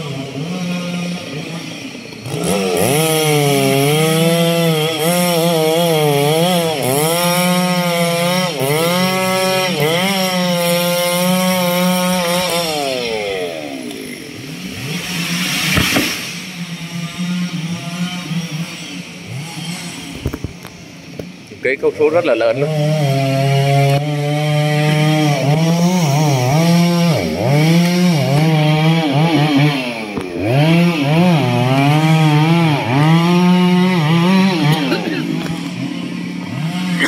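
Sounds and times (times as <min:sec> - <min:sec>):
chainsaw cutting wood: 0:00.0 - 0:37.0
loud burst of noise: 0:15.0 - 0:16.8.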